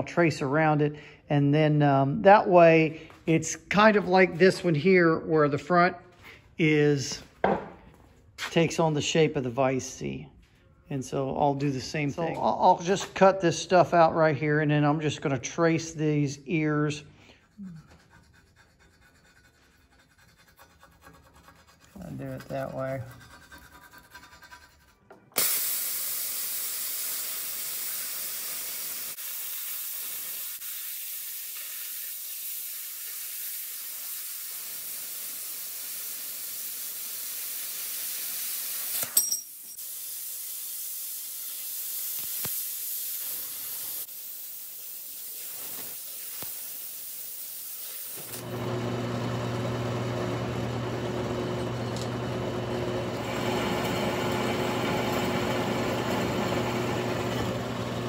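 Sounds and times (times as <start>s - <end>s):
plasma cutter hissing: 25.4s - 39.2s, 39.8s - 48.4s
drill press motor humming: 48.3s - 58.0s.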